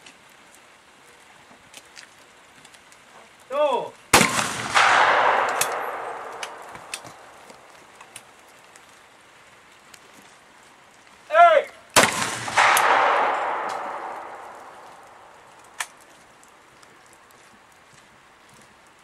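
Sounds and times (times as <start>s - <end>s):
person shouting a call: 3.5s - 3.9s, 11.3s - 11.8s
shotgun shots echoing: 4.2s - 8.0s, 12.0s - 15.9s.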